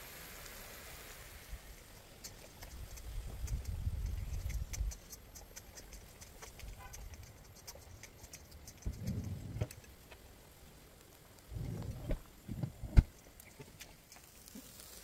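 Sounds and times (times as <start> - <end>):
low rumble: 8.9 - 9.9, 11.5 - 13.1.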